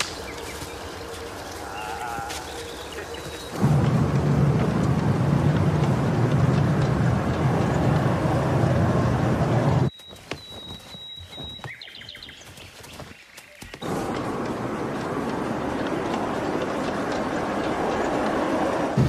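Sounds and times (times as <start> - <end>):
train carriage rumble: 0.0 - 9.9, 13.8 - 19.0
bird whistling and chirping: 9.9 - 12.6.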